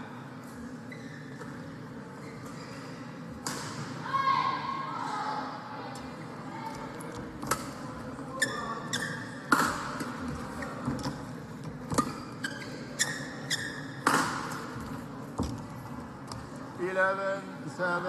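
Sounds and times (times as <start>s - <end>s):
court shoes squeaking: 0.4s - 4.0s, 6.8s - 16.7s.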